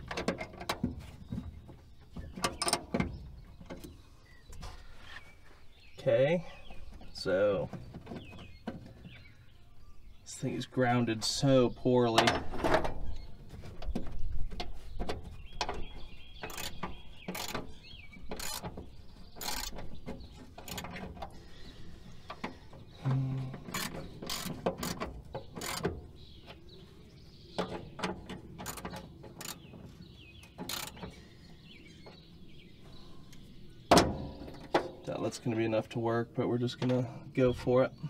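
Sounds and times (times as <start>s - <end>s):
hand tools clicking on metal: 19.4s - 19.8s, 23.7s - 25.0s, 25.6s - 25.9s, 30.6s - 31.1s.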